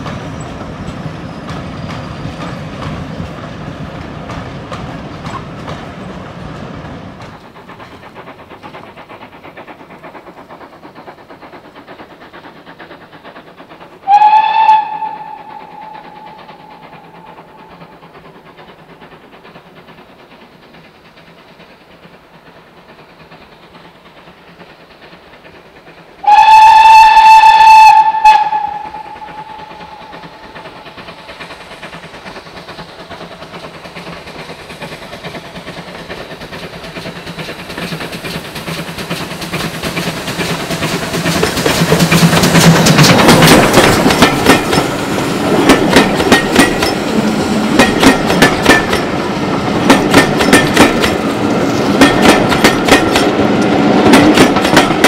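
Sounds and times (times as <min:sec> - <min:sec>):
moving train noise: 0:00.0 - 0:55.0
locomotive horn blasts: 0:14.1 - 0:16.0, 0:26.2 - 0:29.7.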